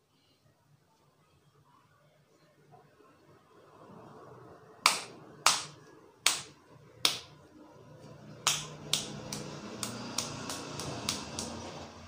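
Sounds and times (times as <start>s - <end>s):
sharp hand claps: 4.8s - 7.3s, 8.4s - 11.6s.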